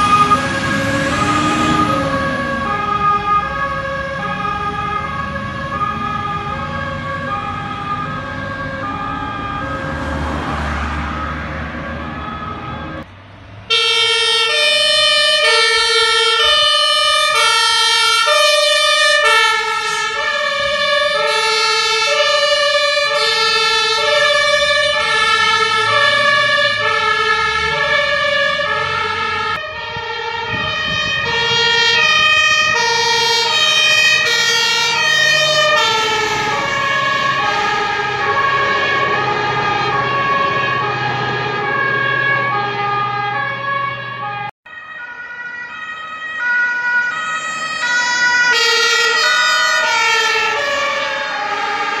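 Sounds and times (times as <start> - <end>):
truck engines running: 0.0 - 52.0
two-tone sirens: 0.0 - 52.0.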